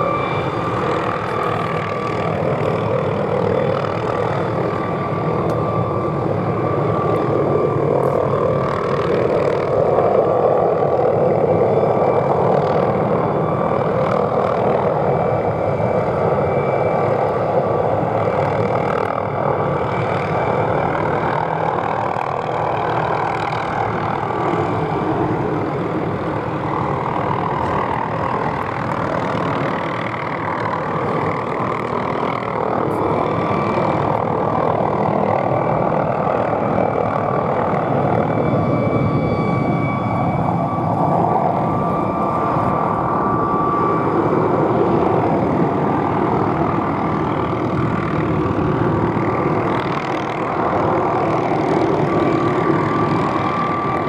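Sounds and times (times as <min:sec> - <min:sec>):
faint high whine: 0:00.0 - 0:54.0
helicopter turbine and rotor: 0:00.0 - 0:54.0.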